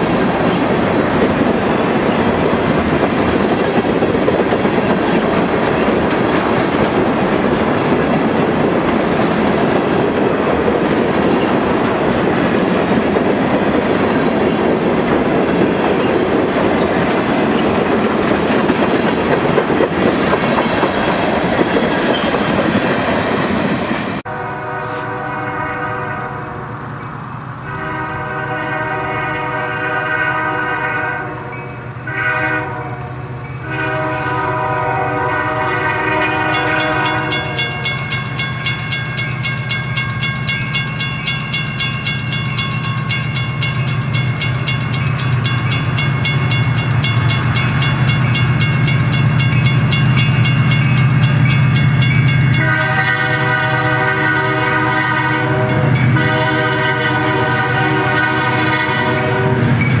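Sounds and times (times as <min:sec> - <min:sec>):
locomotive air horn blasts: 0:24.2 - 0:26.7, 0:27.6 - 0:37.9, 0:52.5 - 0:59.8
crossing bell ticking rapidly: 0:36.5 - 0:52.9.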